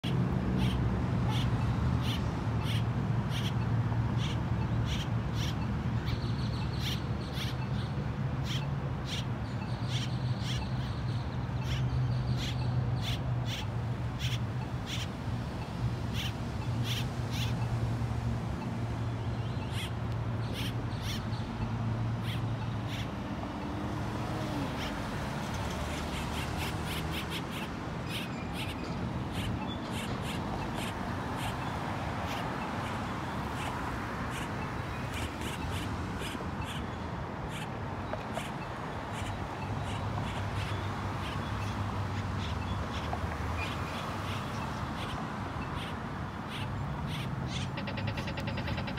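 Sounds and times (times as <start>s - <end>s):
low traffic rumble: 0.0s - 48.9s
grackles chuck calls: 45.7s - 48.9s.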